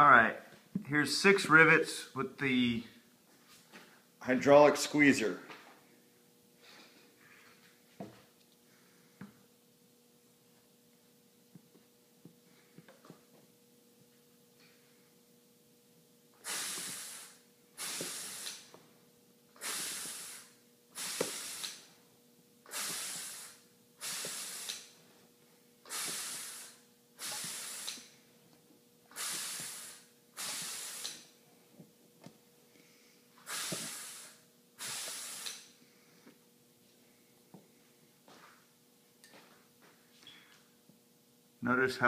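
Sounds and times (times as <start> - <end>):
hydraulic rivet squeezer hissing: 16.4 - 18.8, 19.6 - 21.9, 22.6 - 25.0, 25.9 - 28.2, 29.1 - 31.3, 33.4 - 35.7.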